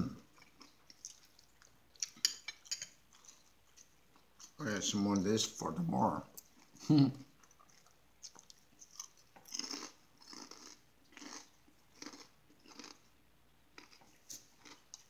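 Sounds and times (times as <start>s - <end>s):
person chewing crunchy chip: 0.2s - 2.2s, 7.4s - 13.1s, 13.7s - 15.0s.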